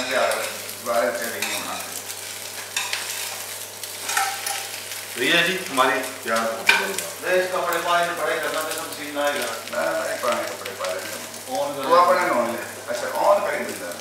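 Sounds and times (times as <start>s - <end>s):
food sizzling in a frying pan: 0.0s - 14.0s
metal utensil scraping a pan: 1.3s - 2.0s, 2.6s - 4.8s.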